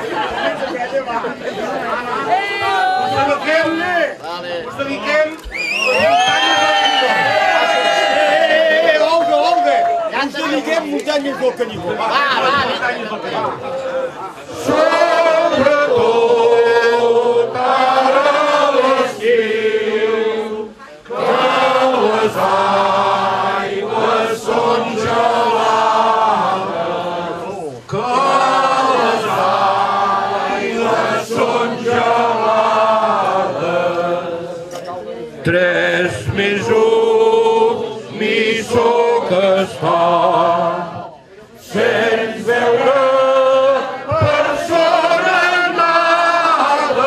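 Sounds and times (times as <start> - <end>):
group of people singing: 11.8 - 47.0.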